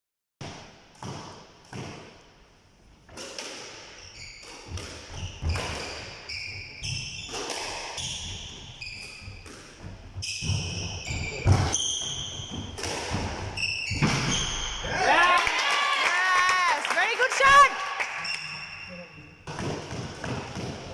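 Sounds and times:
squash ball hitting walls: 0.5s - 2.3s, 3.1s - 15.0s, 19.4s - 20.9s
shoes squeaking on court: 3.6s - 14.8s.

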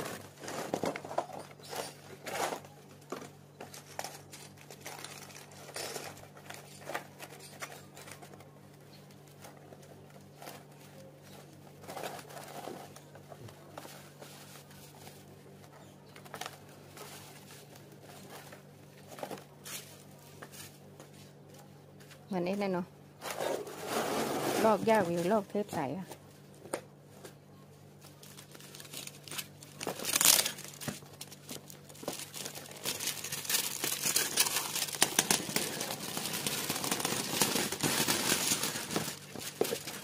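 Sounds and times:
plastic film peeling crinkling: 28.0s - 40.0s.

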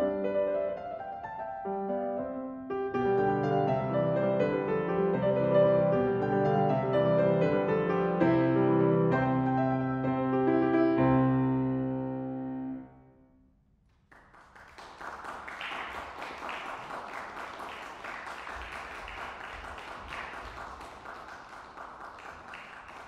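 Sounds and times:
piano chord: 0.0s - 13.4s
audience applause: 14.1s - 23.0s.

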